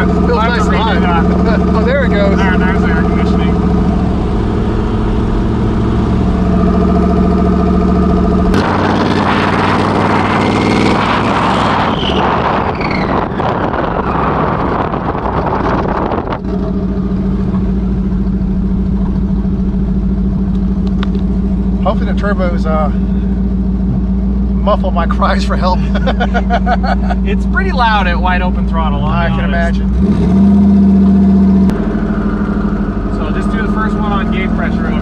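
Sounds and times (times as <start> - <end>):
turbo whistling glides: 0.0 - 21.2
car engine idling: 0.0 - 35.0
loud rushing engine noise: 0.0 - 35.0.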